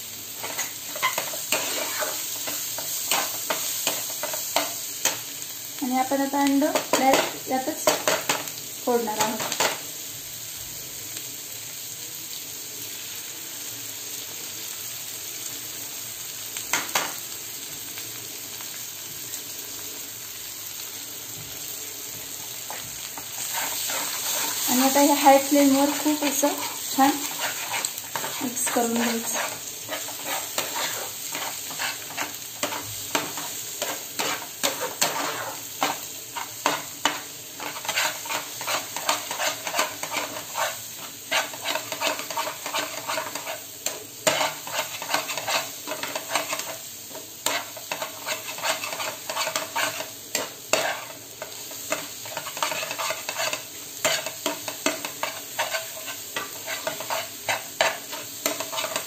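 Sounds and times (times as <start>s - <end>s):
eggs sizzling in frying pan: 0.0s - 59.0s
metal spatula scraping pan: 0.4s - 5.2s, 22.7s - 46.8s, 47.4s - 59.0s.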